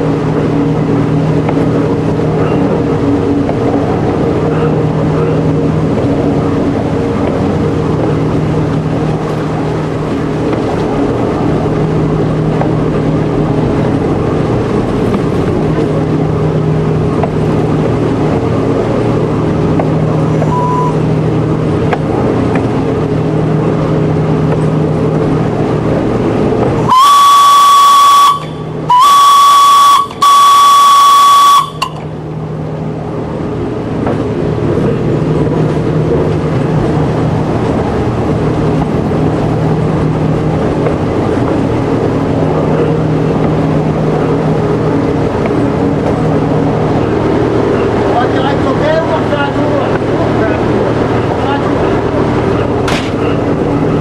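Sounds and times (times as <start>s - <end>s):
railcar engine running: 0.0s - 54.0s
warning horn blasts: 26.8s - 32.0s.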